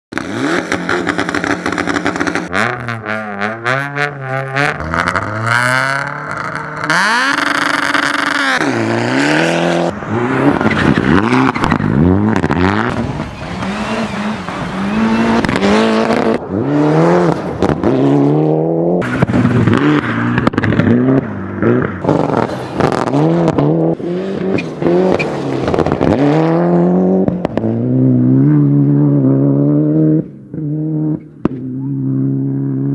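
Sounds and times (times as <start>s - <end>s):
rally car engines revving: 0.1s - 32.9s.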